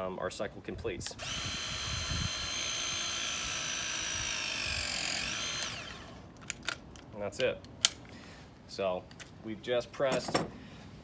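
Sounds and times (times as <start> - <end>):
press tool motor whine: 1.2 - 6.2
tool clicks: 5.1 - 8.0.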